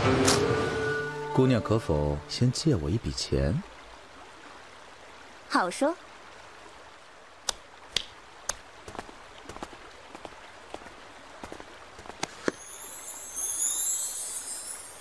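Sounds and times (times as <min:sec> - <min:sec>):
high shimmering sparkle effect: 0:12.3 - 0:15.0.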